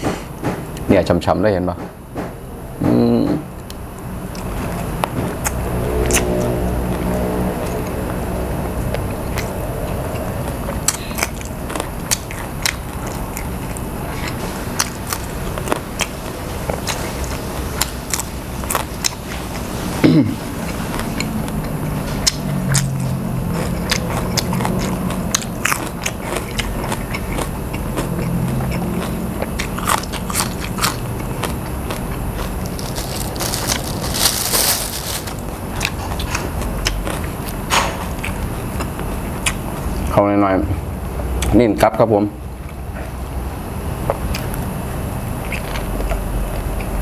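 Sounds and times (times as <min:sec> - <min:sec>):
crisp chewing crunches: 0:20.6 - 0:39.6.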